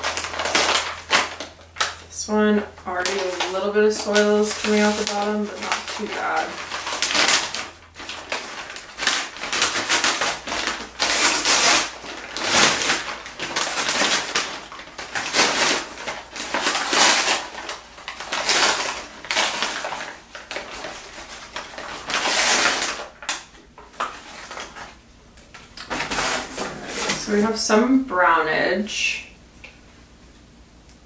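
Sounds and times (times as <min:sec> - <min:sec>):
paper crinkling and rustling: 0:00.0 - 0:02.0, 0:02.9 - 0:27.6.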